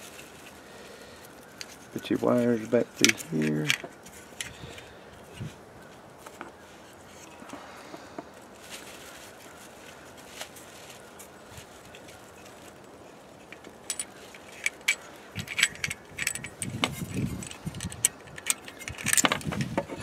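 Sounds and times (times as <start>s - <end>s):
handling rustle: 0.0s - 20.0s
small metal parts clinking: 1.6s - 5.5s, 11.8s - 20.0s.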